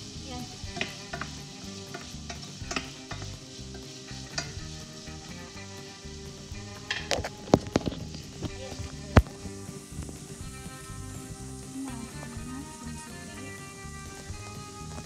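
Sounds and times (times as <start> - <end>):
food sizzling in a pot: 0.0 - 15.0
wooden spoon knocking on pot: 0.5 - 4.7.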